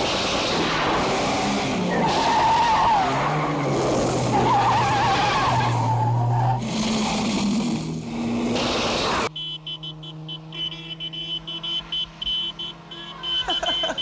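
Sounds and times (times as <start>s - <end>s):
car engines running at speed: 0.0s - 14.0s
car tyres squealing: 1.8s - 7.3s.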